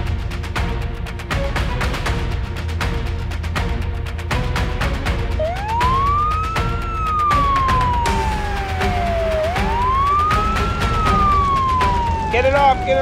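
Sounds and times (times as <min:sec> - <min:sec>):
background music with steady beat: 0:00.0 - 0:13.0
wailing siren: 0:05.4 - 0:13.0.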